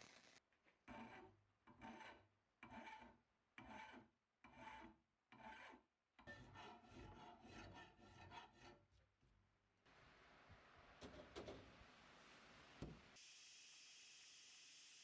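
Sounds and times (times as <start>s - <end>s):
metal file rasping on steel: 0.9s - 8.9s.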